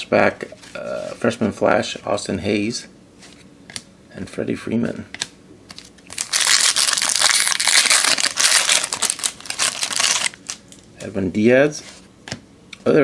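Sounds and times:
foil wrapper crinkling and tearing: 5.7 - 10.8.

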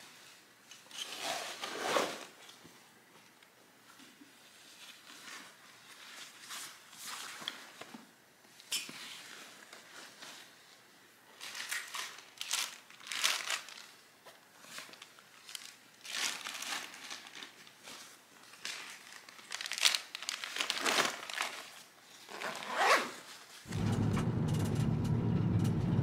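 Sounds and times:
fabric backpack rustling: 1.0 - 2.4, 14.6 - 23.7.

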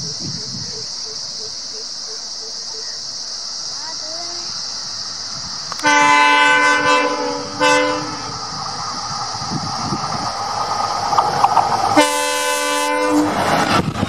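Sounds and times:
locomotive engine and wheels: 0.0 - 14.0
rail clatter: 4.5 - 14.0
locomotive horn: 5.8 - 8.4, 12.0 - 13.4.

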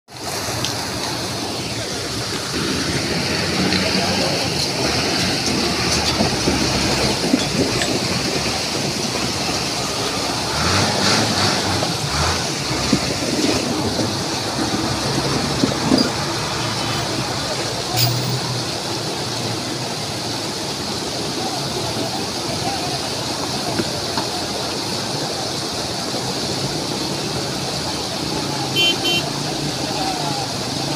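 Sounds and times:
floodwater rushing: 0.1 - 30.9
truck engine running: 0.8 - 22.7.

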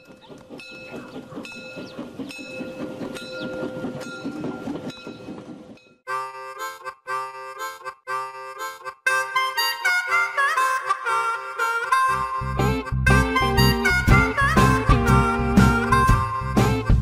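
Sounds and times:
harmonica playing chords: 6.1 - 17.0.

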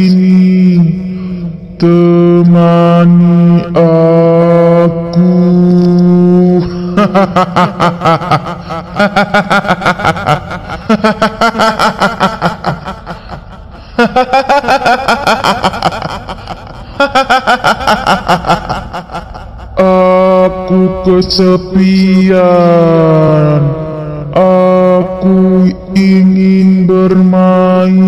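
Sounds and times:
woman cackling laugh: 6.9 - 19.8.

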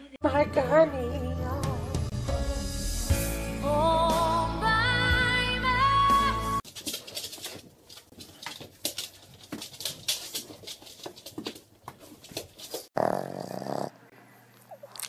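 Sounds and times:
dog clicks and taps: 6.6 - 12.9.

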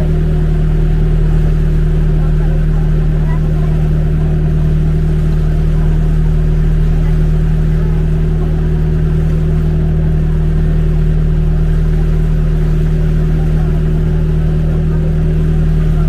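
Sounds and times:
boat engine droning: 0.0 - 16.0.

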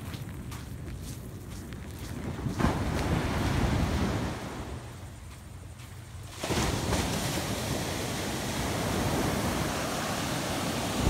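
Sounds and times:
wind rumble on microphone: 0.0 - 11.0
ocean surf breaking on sand: 6.3 - 11.0.

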